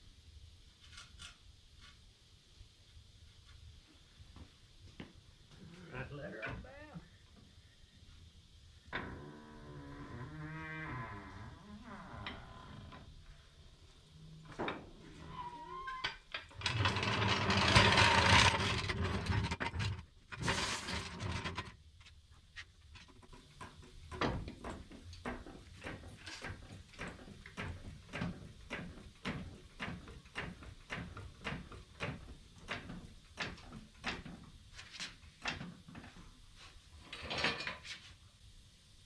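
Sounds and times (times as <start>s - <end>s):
rattling and scraping: 14.6s - 21.8s
floor jack clicking: 16.5s - 21.7s.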